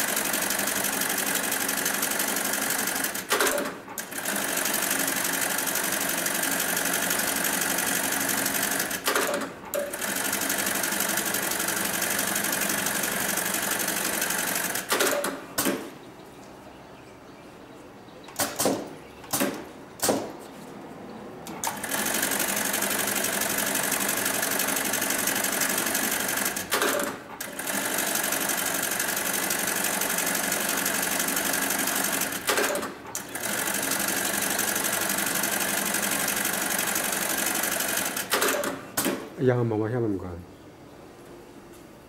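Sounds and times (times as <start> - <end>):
sewing machine stitching: 0.0 - 15.8, 21.5 - 39.2
sharp clicks of clamp: 14.8 - 15.9, 38.2 - 39.3.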